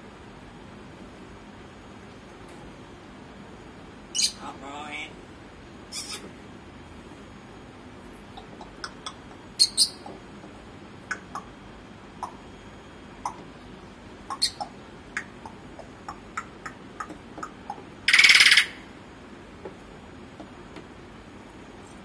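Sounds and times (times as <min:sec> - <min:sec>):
parrot squawk: 0:05.9 - 0:06.3, 0:08.4 - 0:10.1, 0:14.3 - 0:16.8, 0:18.1 - 0:18.8
parrot clicks and chirps: 0:08.4 - 0:10.2, 0:11.1 - 0:11.5, 0:12.2 - 0:12.4, 0:13.2 - 0:13.5, 0:14.3 - 0:18.7.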